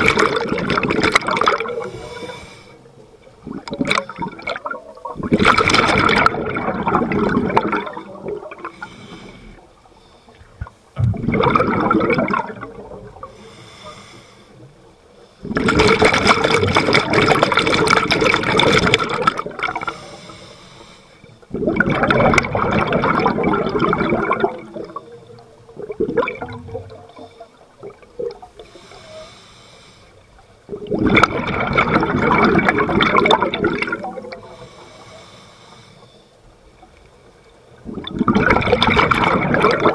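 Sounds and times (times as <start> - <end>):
underwater exhaust bubbling: 0.0 - 39.9.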